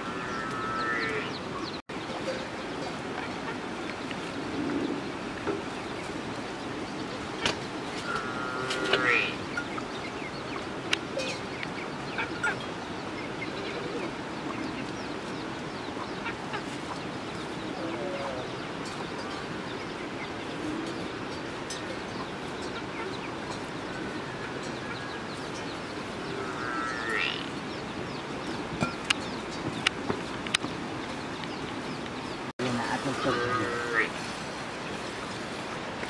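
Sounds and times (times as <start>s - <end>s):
rising call: 0.0s - 1.4s, 8.0s - 9.4s
birds calling: 0.0s - 36.0s
steady outdoor hiss: 0.0s - 36.0s
chickens clucking: 15.8s - 19.2s.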